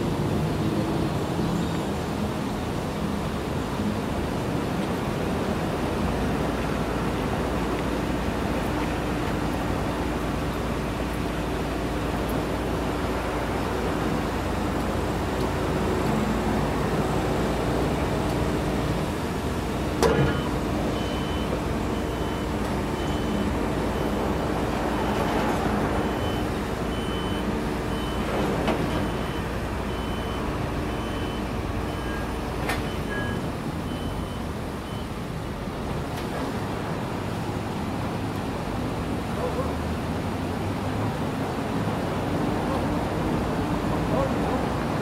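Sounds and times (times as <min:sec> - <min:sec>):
van engine running: 0:05.8 - 0:32.7
high beeps: 0:28.9 - 0:35.1.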